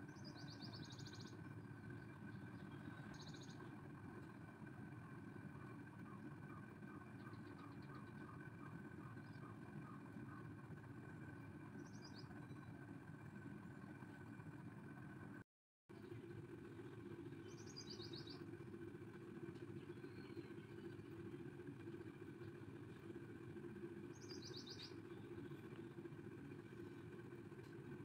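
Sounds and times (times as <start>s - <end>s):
bird chirp trill: 0.0s - 3.8s, 11.8s - 12.8s, 17.4s - 18.5s, 24.1s - 25.4s
low background hum: 0.0s - 28.0s.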